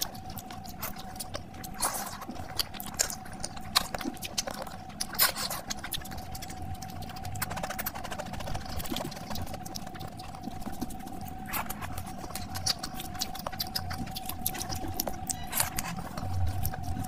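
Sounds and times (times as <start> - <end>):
wet chewing and lip smacking: 0.0 - 17.0
faint steady tone: 13.3 - 17.0.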